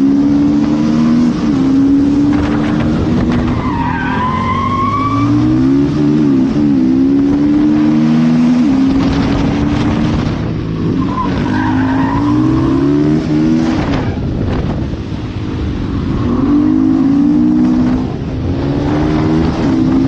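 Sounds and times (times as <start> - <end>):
wind rushing over microphone: 0.0 - 3.8, 5.3 - 11.5, 12.2 - 20.0
tyre squeal: 3.4 - 5.4
engine at hard throttle: 5.2 - 20.0.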